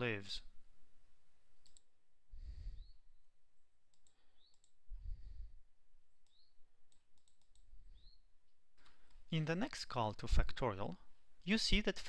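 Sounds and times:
computer mouse clicks: 1.6s - 1.9s, 3.9s - 4.8s, 6.2s - 8.2s.

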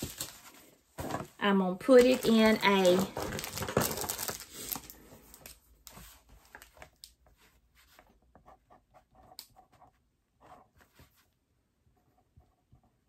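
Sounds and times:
plastic crinkle: 0.0s - 7.2s
hands handling plastic packaging: 0.0s - 7.5s.

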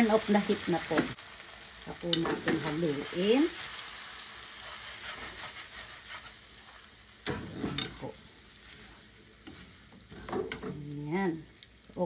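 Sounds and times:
noodles sizzling in a pan: 0.0s - 12.0s
chopsticks stirring: 4.6s - 6.8s, 7.6s - 10.7s.

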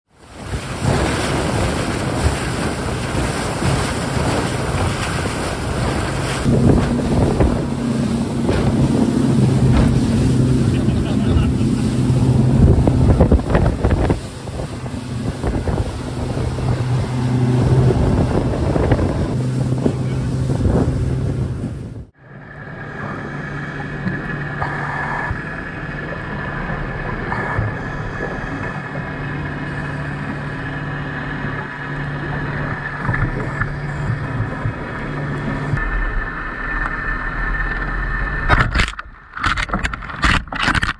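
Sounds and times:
boat engine drone: 0.1s - 40.9s
underwater low hum: 0.1s - 40.9s
wind noise on microphone: 0.3s - 10.8s, 11.8s - 22.2s
high whine: 6.0s - 39.4s.

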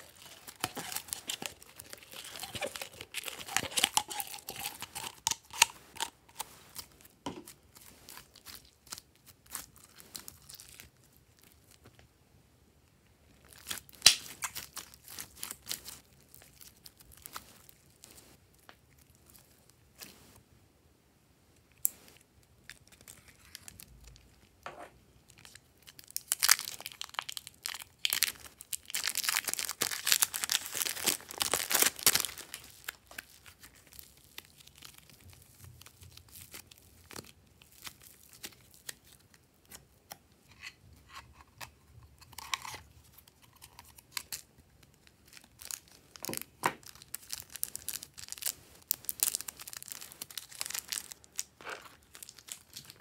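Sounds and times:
plastic bag crinkling: 0.0s - 11.8s, 25.4s - 39.2s, 43.4s - 53.0s
plastic packaging crinkling and tearing: 0.0s - 11.9s, 13.4s - 20.1s, 22.6s - 24.4s, 25.3s - 39.9s, 40.6s - 53.0s.

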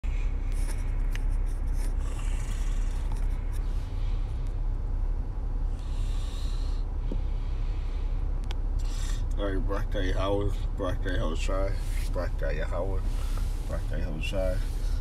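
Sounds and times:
steady low rumble: 0.0s - 15.0s
short hissing rustles: 13.0s - 15.0s.

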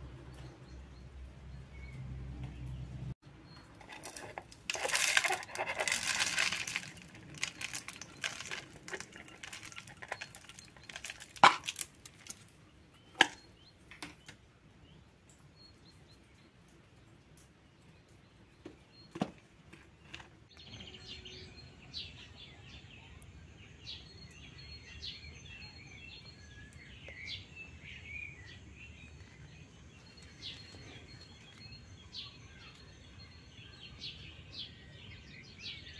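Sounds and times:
small birds chirping faintly: 0.0s - 35.9s
birdseed pouring: 3.8s - 12.6s
outdoor background hiss: 10.7s - 35.9s.

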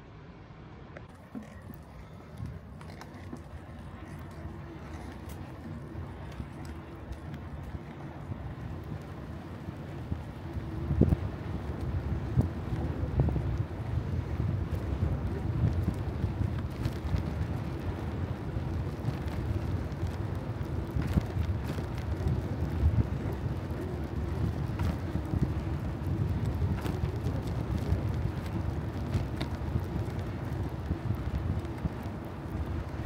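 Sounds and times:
faint clicks: 1.0s - 13.7s
wind buffeting microphone: 1.1s - 33.0s.

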